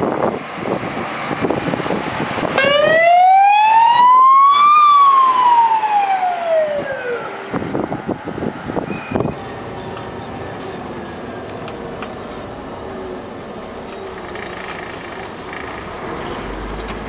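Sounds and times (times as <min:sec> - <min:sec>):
fire engine siren wail: 0:00.0 - 0:13.2.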